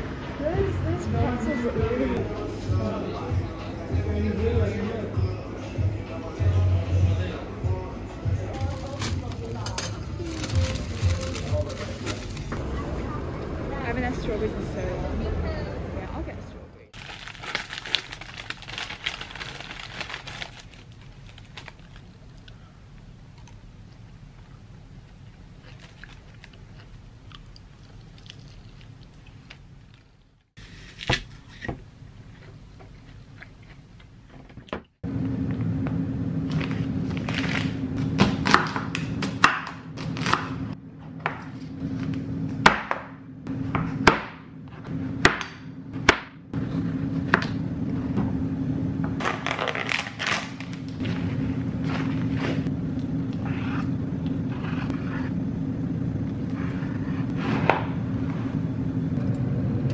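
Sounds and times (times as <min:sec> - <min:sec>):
steady low hum: 0:35.0 - 0:59.9.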